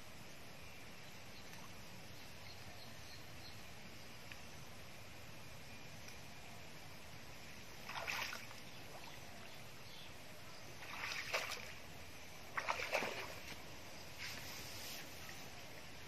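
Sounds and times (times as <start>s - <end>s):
water splashing around wading legs: 7.8s - 9.2s, 10.8s - 11.8s, 12.5s - 13.7s.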